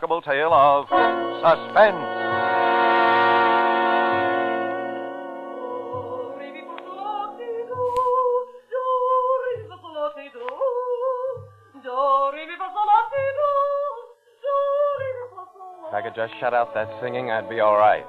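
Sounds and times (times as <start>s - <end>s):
held music chord: 0.7s - 8.0s, 16.4s - 18.0s
woman singing operatic scales: 0.9s - 18.0s.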